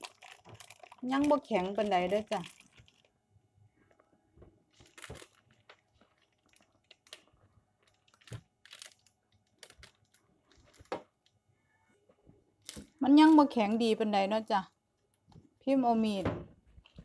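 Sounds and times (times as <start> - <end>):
baking paper crinkling: 4.7 - 11.0.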